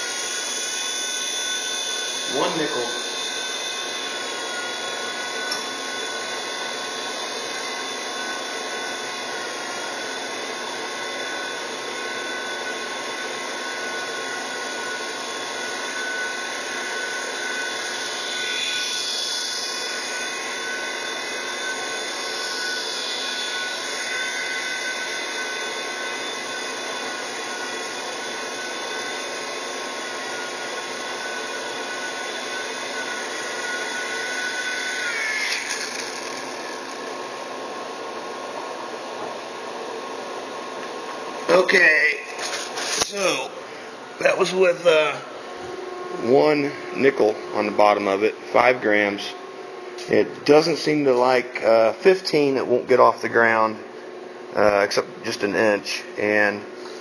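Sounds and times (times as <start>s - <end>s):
toy helicopter rotor whirring: 0.0s - 8.7s, 15.7s - 37.2s, 41.5s - 43.6s.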